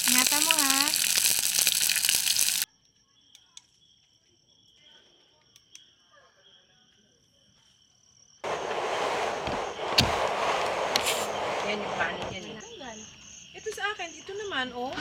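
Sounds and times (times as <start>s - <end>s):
dumplings sizzling in hot oil: 0.0s - 2.7s
insect trilling: 0.0s - 2.7s.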